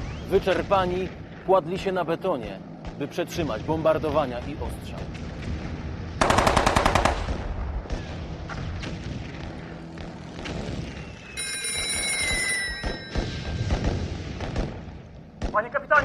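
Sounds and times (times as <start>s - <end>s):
gunshots and impacts: 4.5s - 11.2s, 13.1s - 16.0s
machine-gun burst: 6.2s - 7.5s
high ringing: 11.4s - 13.8s.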